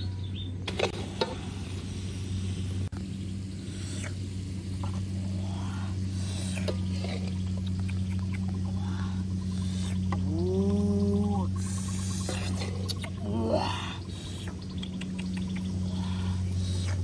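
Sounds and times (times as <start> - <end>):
low hum: 0.0 - 17.0
metal ladle scraping in wok: 6.4 - 7.4.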